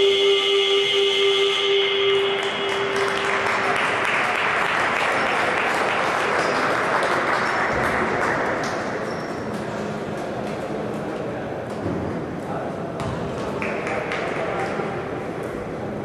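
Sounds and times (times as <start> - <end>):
arena horn steady tone: 0.0 - 4.1
crowd applause and cheering: 2.1 - 9.5.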